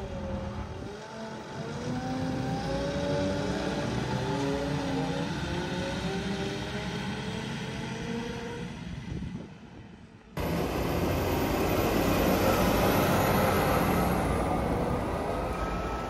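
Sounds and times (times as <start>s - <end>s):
faint high whine: 10.4s - 16.0s
machinery running: 10.4s - 16.0s.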